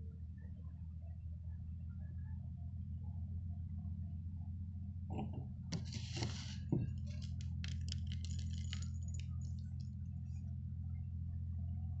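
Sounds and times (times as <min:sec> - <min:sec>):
candy crackling and clicking: 0:05.8 - 0:10.0.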